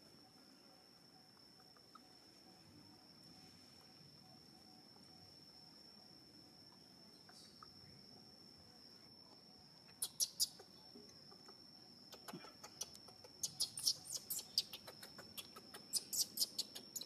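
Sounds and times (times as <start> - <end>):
high insect drone: 0.0 - 17.0
baby monkey squeaking: 13.4 - 14.8.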